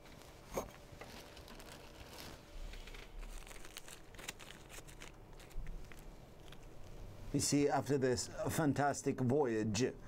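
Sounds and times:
faint crinkling and rustling: 0:00.0 - 0:07.7.

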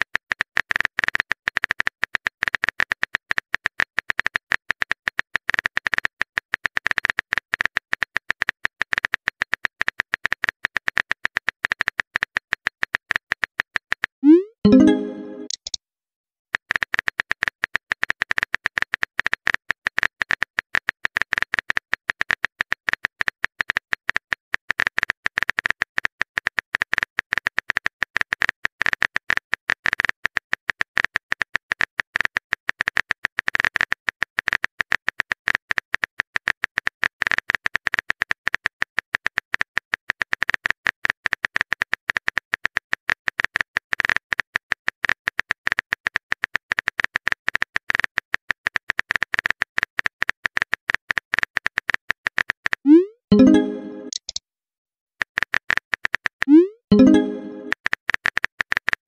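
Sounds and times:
keyboard typing clicks: 0:14.2 - 0:15.8, 0:52.9 - 0:54.4, 0:56.4 - 0:57.8.

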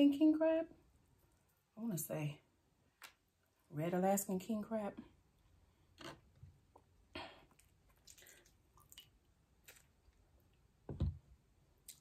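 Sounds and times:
wet squishes: 0:07.6 - 0:10.6.

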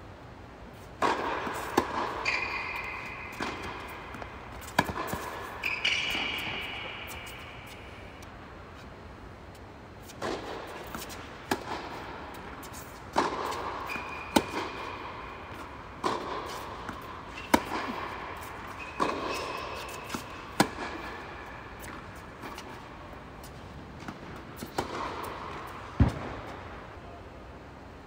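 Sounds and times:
racket striking ball: 0:00.9 - 0:08.2, 0:10.1 - 0:26.6
ball bouncing: 0:01.0 - 0:08.2, 0:12.7 - 0:22.8.

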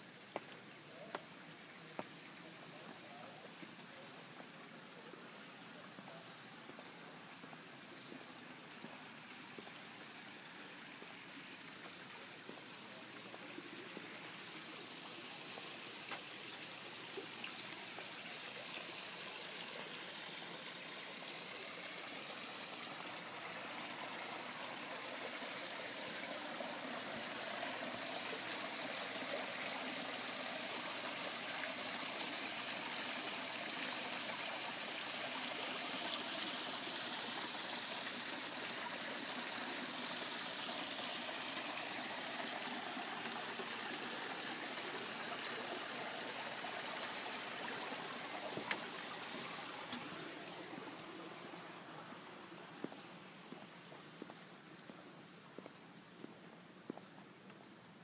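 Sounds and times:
water rushing over rocks: 0:12.6 - 0:53.2.

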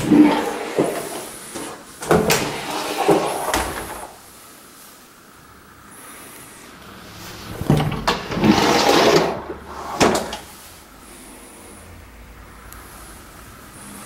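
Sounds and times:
door scraping slide: 0:00.0 - 0:04.3, 0:07.0 - 0:10.7.

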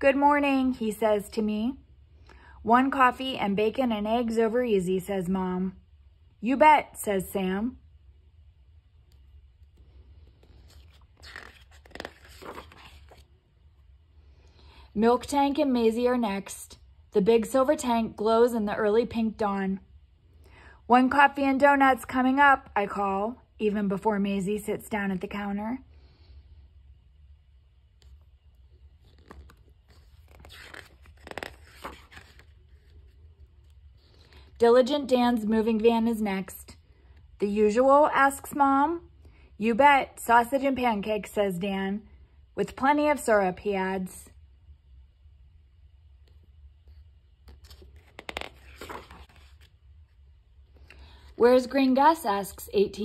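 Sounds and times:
faint steady hum: 0:00.0 - 0:53.0
paper page turning: 0:09.1 - 0:13.4, 0:27.9 - 0:34.2, 0:46.2 - 0:51.0.

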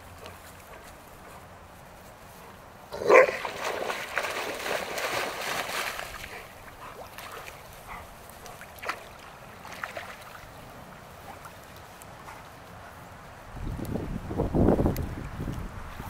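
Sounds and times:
dog barking: 0:03.0 - 0:03.4
water splashing and sloshing: 0:03.0 - 0:13.0.

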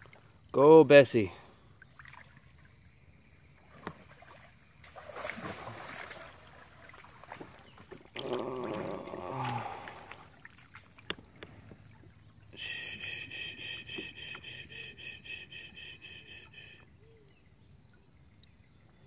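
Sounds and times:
water splashing under paddle strokes: 0:03.6 - 0:12.3.

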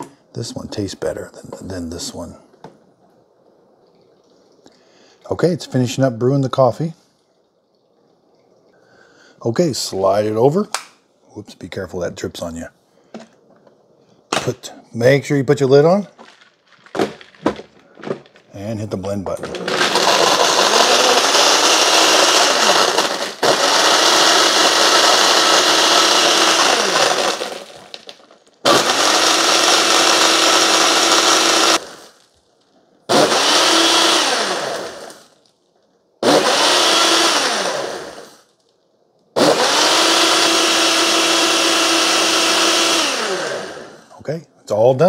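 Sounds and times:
blender running: 0:19.4 - 0:28.1, 0:28.7 - 0:32.2, 0:33.1 - 0:35.3, 0:36.2 - 0:38.5, 0:39.4 - 0:44.1.

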